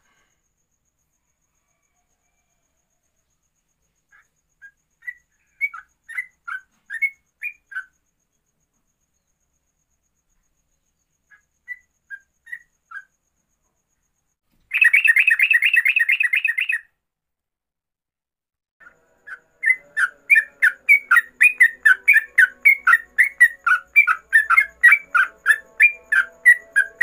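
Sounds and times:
bird whistling song: 4.1s - 7.9s, 11.3s - 13.1s, 14.7s - 16.9s, 18.8s - 27.0s
bird fast rolling trill: 14.7s - 16.8s, 19.2s - 27.0s.

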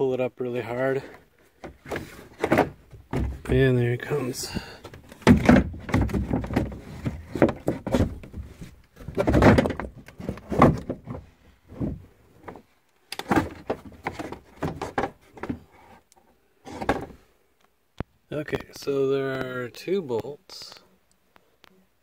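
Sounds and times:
plastic panel knocking and scraping: 1.6s - 3.8s, 4.4s - 12.6s, 13.2s - 15.7s, 16.7s - 17.2s.

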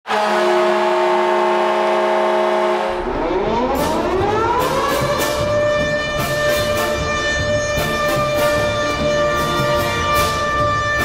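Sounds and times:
hockey goal horn chord: 0.1s - 3.1s, 5.3s - 11.0s
rising tone over low rumble: 2.9s - 11.0s
goal music with sharp hits: 3.6s - 11.0s.

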